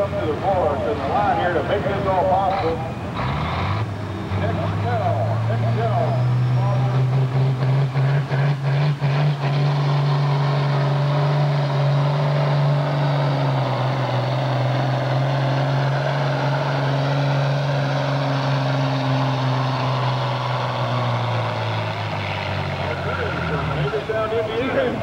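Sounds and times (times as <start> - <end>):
tractor engine under load: 0.0 - 25.0.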